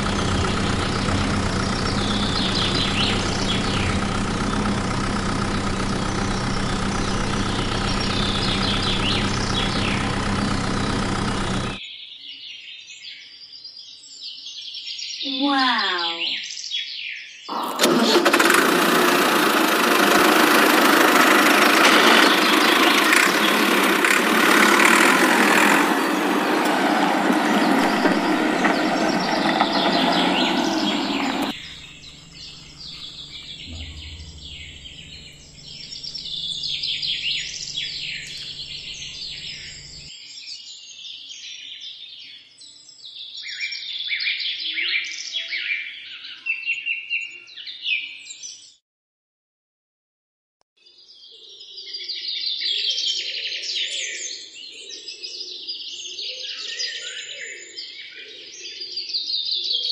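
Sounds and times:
tractor engine running: 0.0s - 11.8s, 17.5s - 40.1s
birds chirping: 0.0s - 11.9s, 15.2s - 40.1s.

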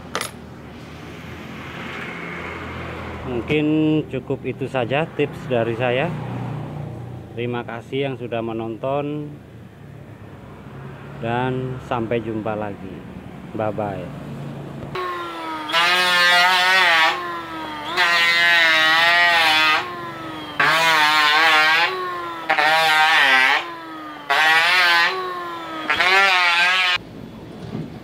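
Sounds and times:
electric planer motor whining: 14.9s - 27.0s
planer cutting wooden board: 15.0s - 27.0s.

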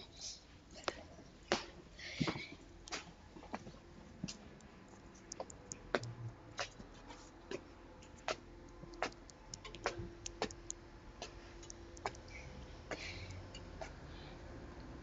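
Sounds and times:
smartphone keyboard tapping clicks: 4.6s - 6.8s, 8.7s - 10.8s, 11.6s - 12.2s.

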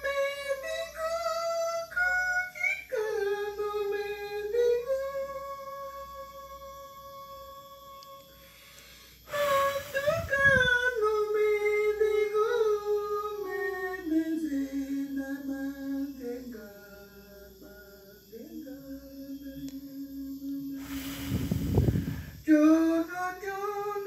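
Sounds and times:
breathy rush of noise: 8.3s - 10.9s, 20.7s - 22.5s
woman singing wordless notes: 9.3s - 20.8s.

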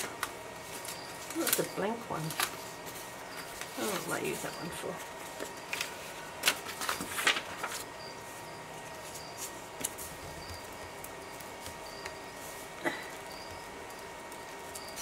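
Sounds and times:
paper pages rustling: 0.0s - 11.8s.

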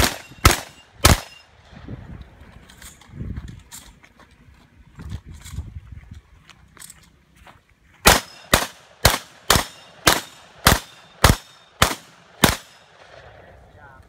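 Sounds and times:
pistol shots: 0.0s - 1.4s, 8.0s - 13.4s.

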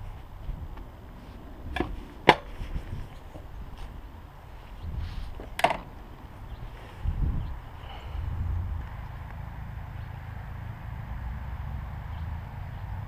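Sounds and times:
clicks and knocks from bike handling: 1.7s - 2.7s, 5.4s - 5.9s
low rumble: 5.9s - 13.0s.

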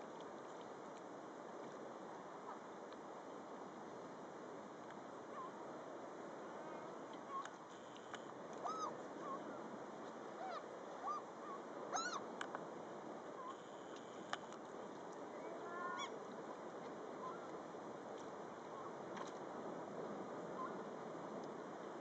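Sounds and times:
background hiss: 0.0s - 22.0s
gulls calling: 7.3s - 9.6s, 10.4s - 12.3s.

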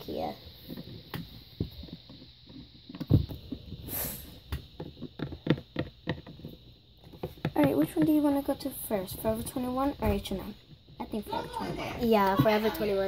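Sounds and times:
plastic toys knocking on a tabletop: 4.6s - 8.2s.

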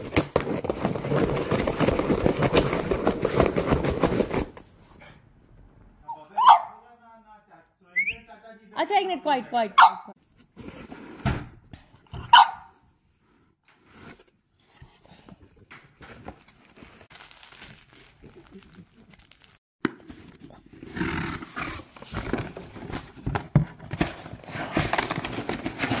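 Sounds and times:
cardboard box rustling: 0.0s - 4.6s, 21.6s - 26.0s
dog barking: 6.1s - 6.8s, 9.8s - 10.1s, 12.2s - 12.8s.

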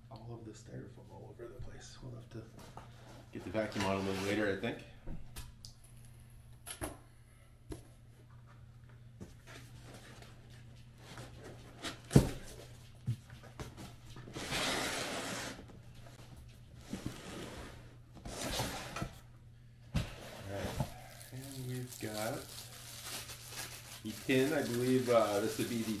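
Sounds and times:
packing rustling: 20.6s - 26.0s.

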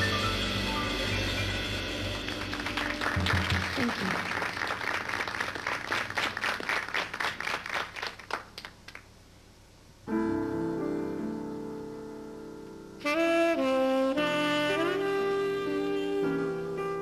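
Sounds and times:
audience applause: 2.1s - 9.1s
saxophone phrase: 13.0s - 17.0s.

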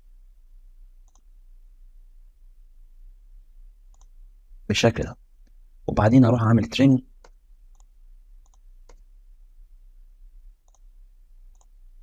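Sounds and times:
computer mouse clicking: 1.0s - 1.3s, 3.9s - 4.2s, 7.2s - 9.0s, 10.6s - 10.9s, 11.5s - 11.8s.

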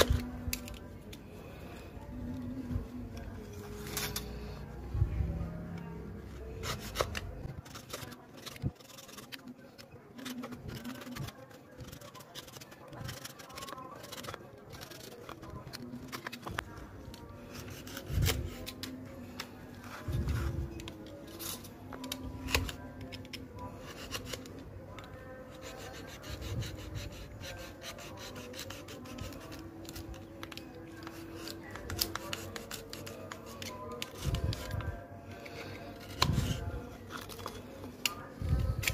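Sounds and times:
knife scraping wood: 6.5s - 9.5s, 10.2s - 16.4s, 23.8s - 24.5s, 25.4s - 34.8s.

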